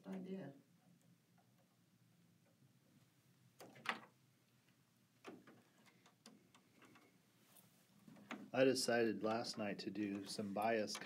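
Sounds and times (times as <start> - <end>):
soft clicks and knocks: 3.6 - 8.6, 10.0 - 11.0.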